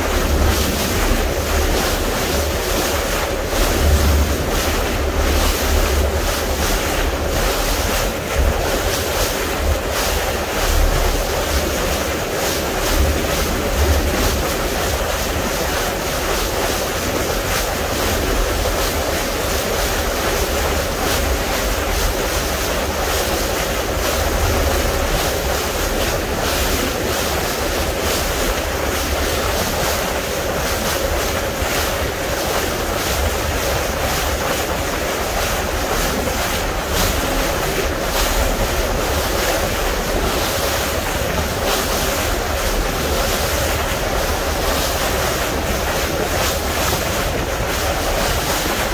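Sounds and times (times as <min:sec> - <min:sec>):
wind buffeting microphone: 0:00.0 - 0:29.8
faint boat hum: 0:00.0 - 0:48.9
water rushing past boat: 0:00.0 - 0:48.9.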